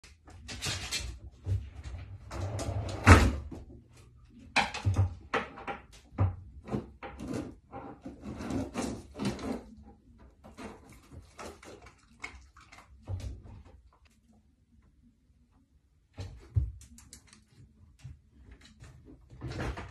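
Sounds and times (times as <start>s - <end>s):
dog rummaging in kitchen drawer: 6.6s - 11.8s, 19.2s - 19.9s.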